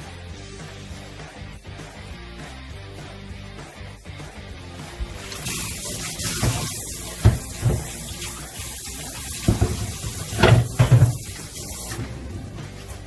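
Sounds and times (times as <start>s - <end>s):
tap running water: 5.0s - 12.1s
dull knocks and clunks: 6.4s - 8.0s, 9.4s - 11.4s.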